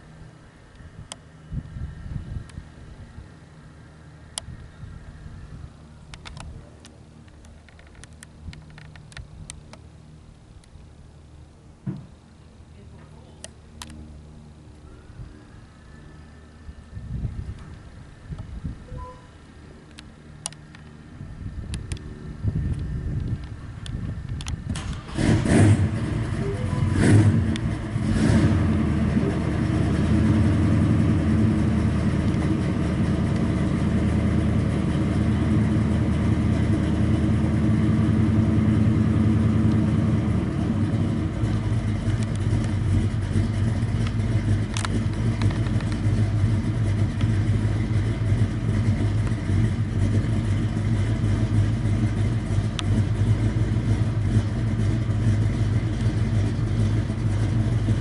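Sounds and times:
jet engines roaring in flight: 13.4 - 58.0.

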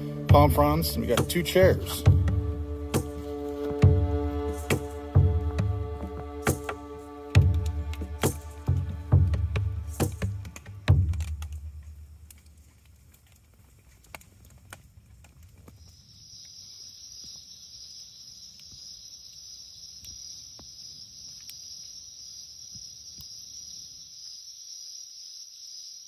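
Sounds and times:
background music: 0.0 - 11.6
insects trilling: 15.7 - 26.0.

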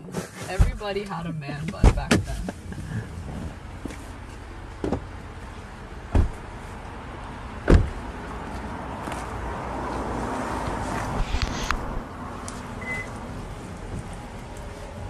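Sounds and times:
car door thumping shut: 4.8 - 5.1, 6.1 - 6.4, 7.6 - 8.0.

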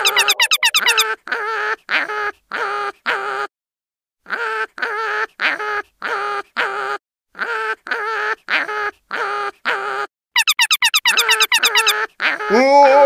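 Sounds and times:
quacking sound effect: 0.0 - 1.1, 10.4 - 11.9.

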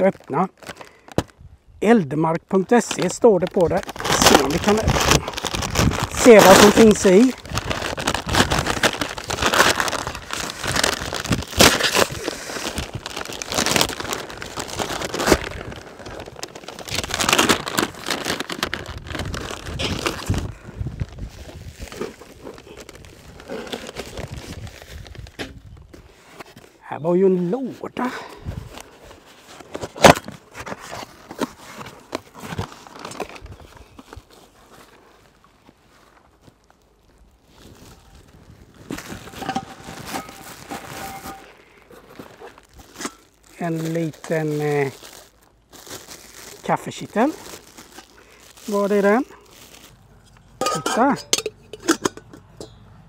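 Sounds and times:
plastic and paper crinkling: 0.0 - 51.4
rustling cardboard and packaging: 0.0 - 51.4
cardboard ripping: 2.8 - 20.5, 29.4 - 33.5.

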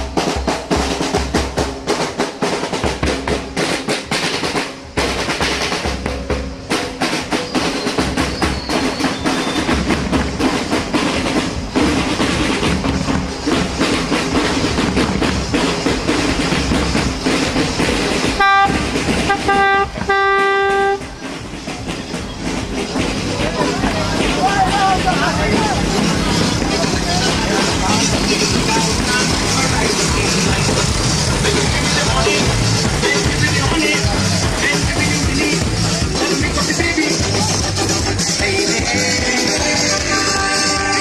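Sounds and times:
deep bass drum beat: 0.0 - 41.0
fast drumming with rolls: 0.0 - 41.0
horn honking: 18.3 - 21.2, 39.6 - 41.0.

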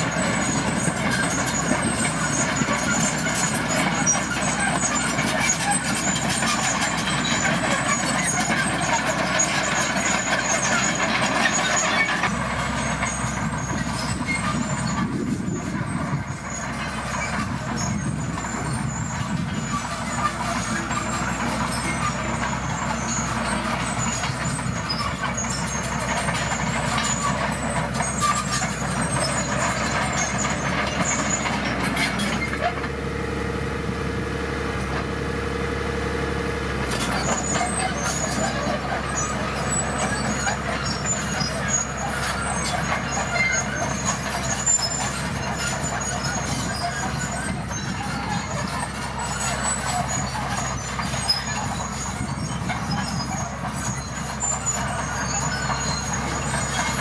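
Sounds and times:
blade pushing stone and soil: 0.0 - 33.0, 36.8 - 57.0
bulldozer diesel engine running: 0.0 - 57.0.

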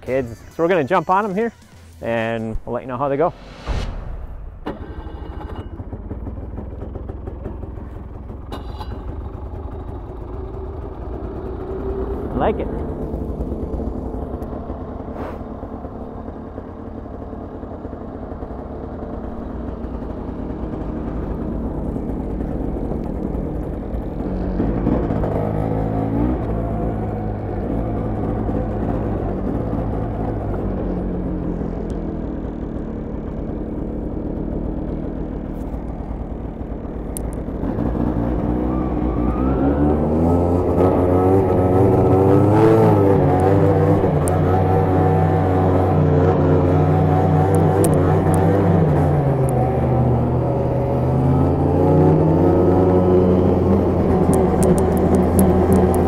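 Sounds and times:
snowmobile engine revving: 0.0 - 3.9, 19.9 - 31.2, 37.5 - 56.0.

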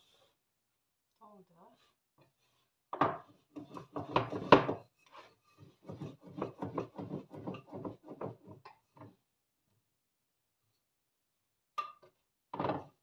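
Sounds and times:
rolling pin rubbing on dough: 3.4 - 8.5.

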